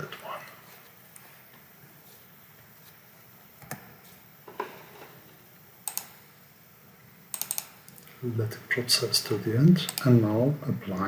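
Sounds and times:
keyboard and mouse clicks: 0:03.6 - 0:03.9, 0:05.9 - 0:06.2, 0:07.3 - 0:08.1, 0:09.9 - 0:10.1.

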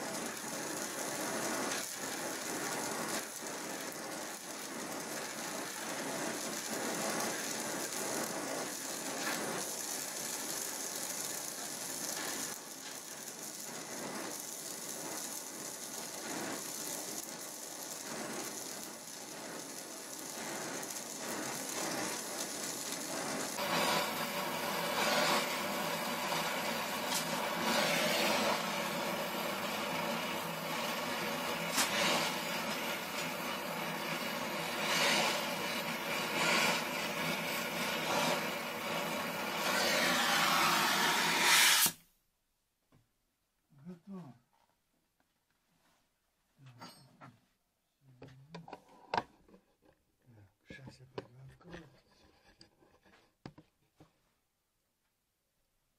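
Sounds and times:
gas torch flame hissing: 0:00.0 - 0:42.0.

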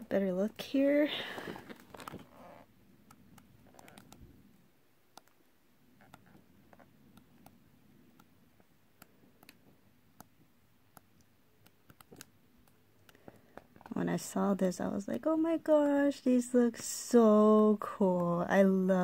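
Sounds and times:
paper pages turning: 0:01.5 - 0:02.3.

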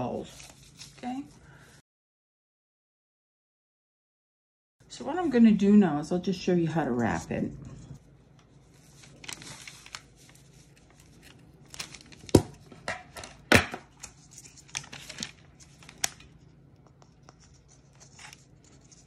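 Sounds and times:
sheet rustling and crinkling: 0:08.4 - 0:16.4.

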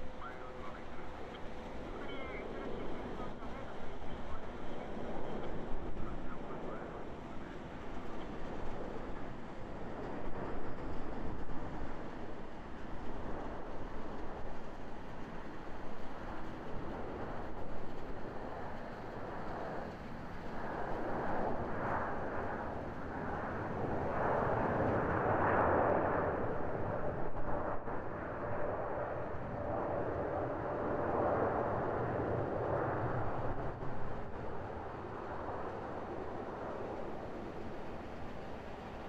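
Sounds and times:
faint steady whine: 0:00.0 - 0:25.1
distant jet engine roar: 0:00.0 - 0:39.0.

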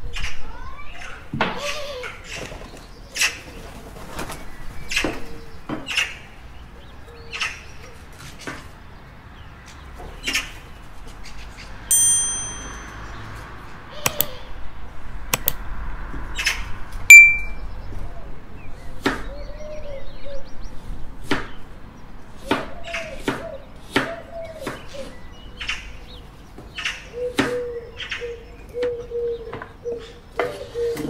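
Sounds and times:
loud short ping: 0:11.9 - 0:13.2, 0:17.1 - 0:17.6
bright ringing ding: 0:11.9 - 0:13.4, 0:17.1 - 0:17.6.

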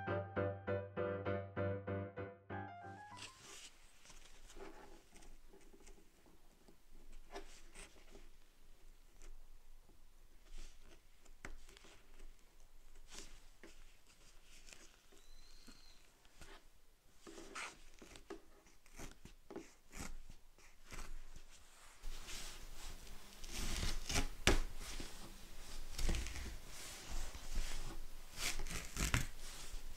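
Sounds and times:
metal pick scratching leather: 0:28.4 - 0:29.4.

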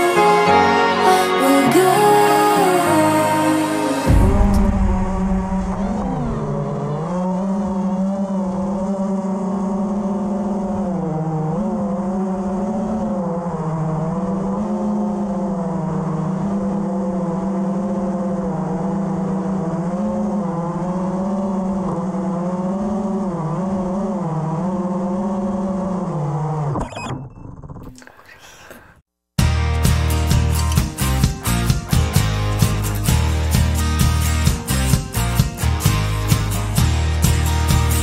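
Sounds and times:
drone motors and propellers buzzing: 0:03.3 - 0:28.0.

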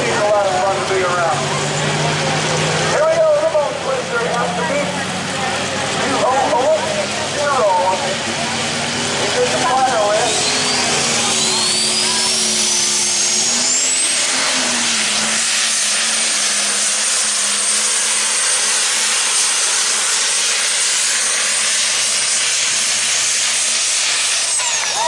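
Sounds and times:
diesel tractor engine roar: 0:00.0 - 0:25.0
high engine whine: 0:00.0 - 0:25.0.

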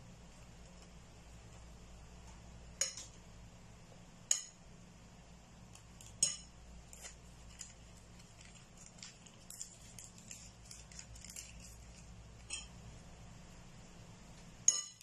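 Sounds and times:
metal spoon clinking against a dish: 0:02.8 - 0:03.1, 0:04.3 - 0:04.6, 0:06.0 - 0:06.5, 0:12.4 - 0:12.8, 0:14.6 - 0:15.0.

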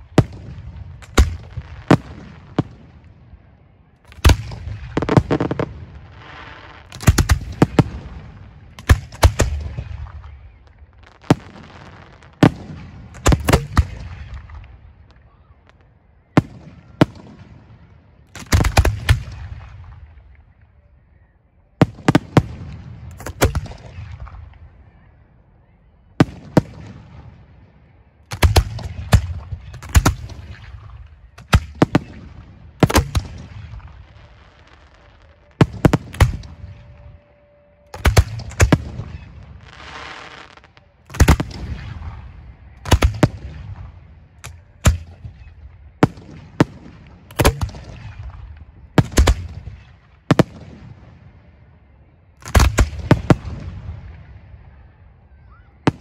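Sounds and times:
fireworks bangs: 0:00.0 - 0:03.2, 0:04.0 - 0:20.4, 0:28.3 - 0:51.3.

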